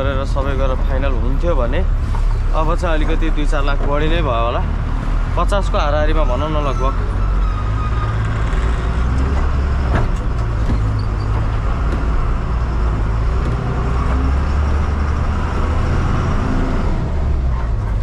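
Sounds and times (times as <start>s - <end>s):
road noise: 0.0s - 18.0s
truck diesel engine rumble: 0.0s - 18.0s.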